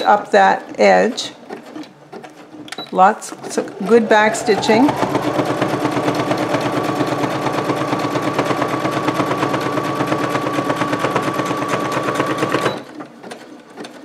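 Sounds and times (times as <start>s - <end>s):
sewing machine motor whine: 3.3s - 12.9s
sewing machine needle clatter: 11.1s - 14.0s.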